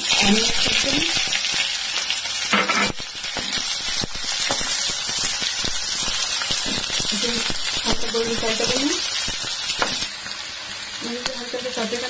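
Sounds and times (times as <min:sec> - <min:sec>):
onions sizzling in hot oil: 0:00.0 - 0:12.0
small crackles and pops: 0:01.0 - 0:10.1.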